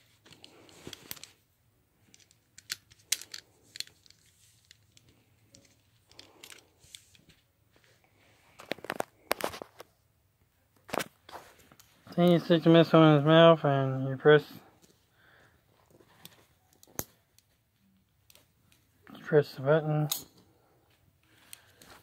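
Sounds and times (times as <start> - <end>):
handling rustles: 0.0 - 10.0.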